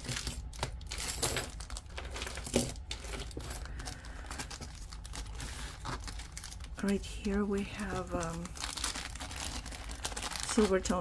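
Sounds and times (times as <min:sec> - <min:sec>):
metal jewelry clinking: 0:00.0 - 0:04.0
plastic bags crinkling: 0:00.0 - 0:11.0.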